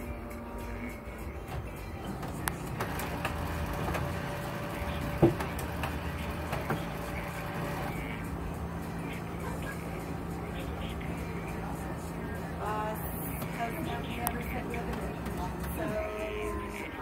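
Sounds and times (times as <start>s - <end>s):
printer clicks: 2.1s - 7.9s
laser printer humming: 2.1s - 17.0s.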